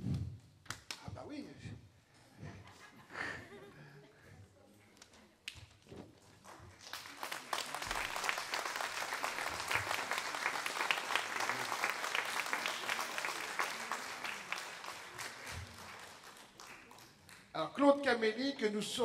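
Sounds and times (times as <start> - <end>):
audience applauding: 6.5 - 17.5.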